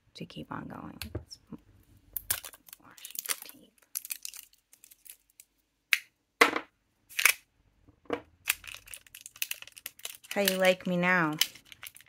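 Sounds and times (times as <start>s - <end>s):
plastic wrapping crinkling: 2.2s - 5.5s, 8.4s - 12.0s
plastic wrapping clicks: 8.5s - 12.0s.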